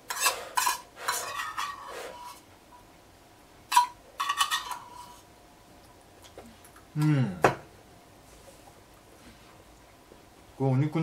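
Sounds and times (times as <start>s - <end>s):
metal spoon scraping skillet: 0.0s - 2.4s, 3.7s - 5.2s.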